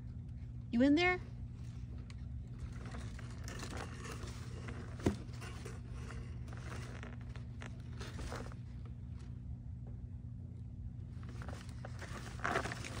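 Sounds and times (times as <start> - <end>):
steady low hum: 0.0 - 13.0
packing paper crinkling: 11.2 - 13.0.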